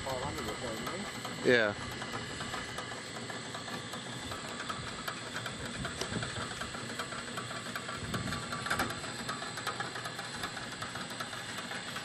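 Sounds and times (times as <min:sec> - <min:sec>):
winch running steadily: 0:00.0 - 0:12.0.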